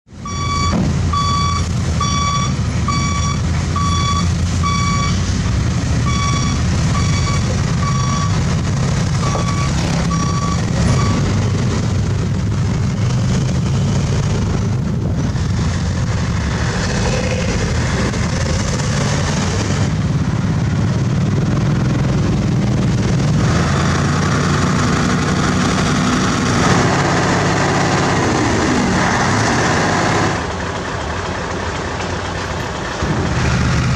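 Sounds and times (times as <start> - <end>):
heavy diesel truck engine running: 0.1 - 33.9
reversing alarm beeping: 0.2 - 5.3, 6.0 - 11.4.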